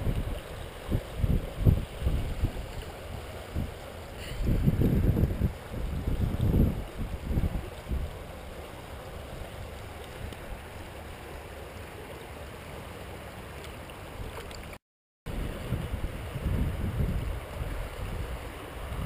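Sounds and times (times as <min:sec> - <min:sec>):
wind buffeting microphone: 0:00.0 - 0:08.6, 0:15.3 - 0:19.0
river flowing: 0:00.0 - 0:19.0.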